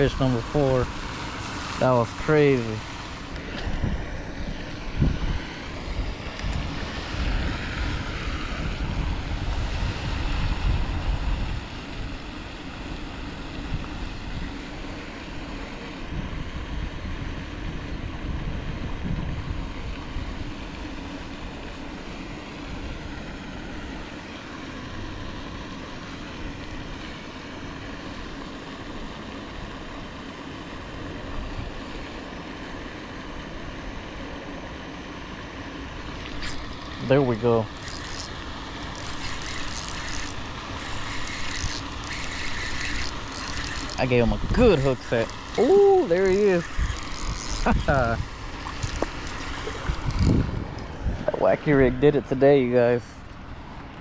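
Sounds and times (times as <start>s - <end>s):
wind buffeting microphone: 3.6s - 12.2s, 16.0s - 20.5s, 43.6s - 52.2s.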